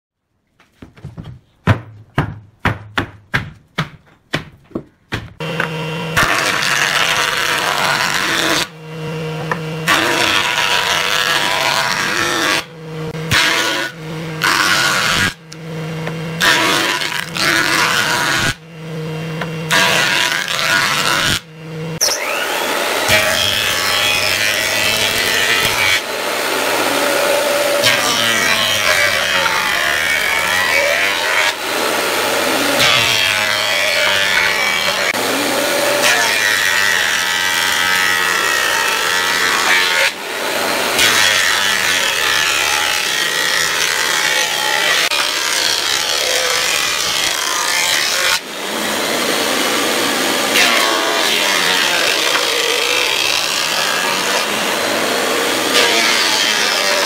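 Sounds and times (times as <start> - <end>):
planer shaving boards: 0.4 - 57.0
sharp knocks: 0.8 - 5.8
thickness planer running: 5.3 - 57.0.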